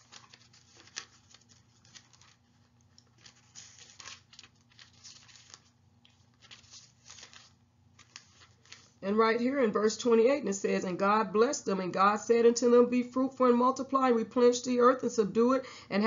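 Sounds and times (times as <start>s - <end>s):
thin pages rustling: 0.0s - 9.0s.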